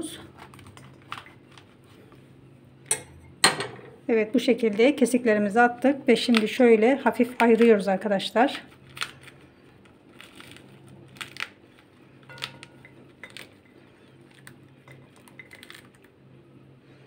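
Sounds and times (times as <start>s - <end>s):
pomegranate being pulled apart: 8.7s - 16.1s.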